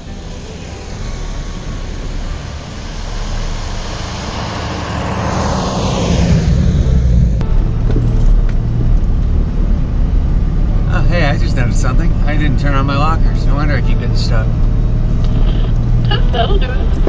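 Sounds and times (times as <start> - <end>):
car driving past through snow: 0.0 - 7.4
car engine low hum: 0.0 - 17.0.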